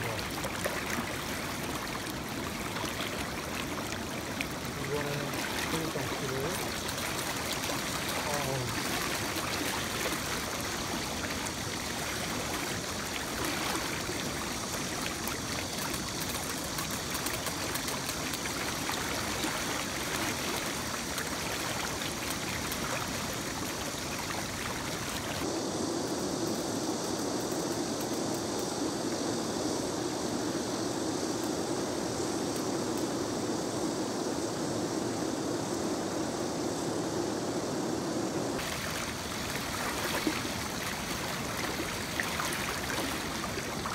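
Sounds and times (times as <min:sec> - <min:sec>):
river rushing: 0:00.0 - 0:25.5, 0:38.6 - 0:43.9.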